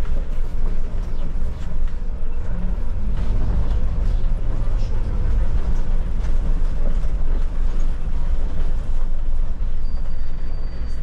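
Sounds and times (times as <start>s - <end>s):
bus engine and tyre rumble: 0.0s - 11.0s.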